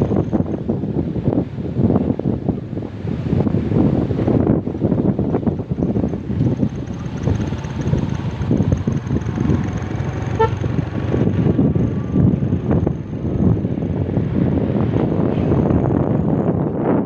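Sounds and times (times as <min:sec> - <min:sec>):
motorcycle engine: 0:00.0 - 0:00.8, 0:04.1 - 0:16.7
tyres on concrete road: 0:00.0 - 0:17.0
wind buffeting microphone: 0:00.0 - 0:17.0
short horn beep: 0:10.3 - 0:10.7.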